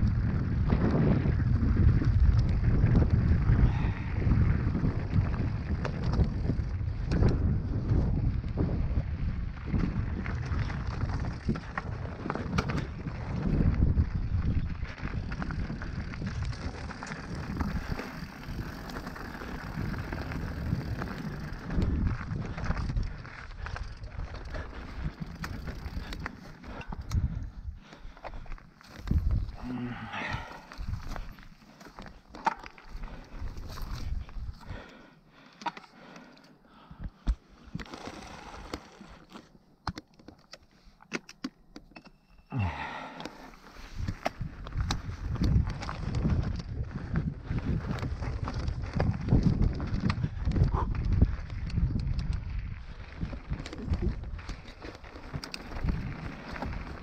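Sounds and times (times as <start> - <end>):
wind buffeting microphone: 0.0 - 31.5, 43.8 - 57.0
bike rattling and knocking: 9.6 - 27.4, 44.0 - 57.0.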